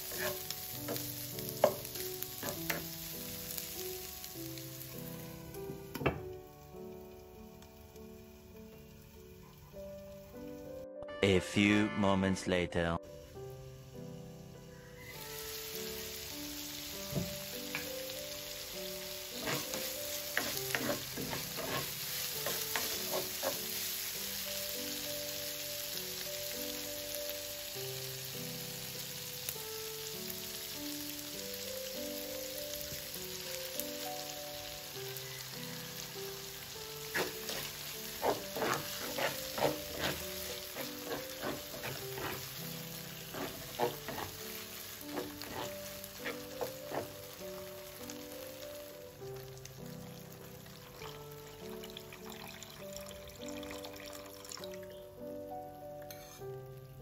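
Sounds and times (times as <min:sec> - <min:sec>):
spoon clacking and scraping a pan: 0:00.0 - 0:02.9, 0:19.3 - 0:24.0, 0:37.0 - 0:47.5
meat sizzling in a frying pan: 0:00.0 - 0:10.7, 0:13.2 - 0:54.8
soft background music: 0:00.0 - 0:57.0.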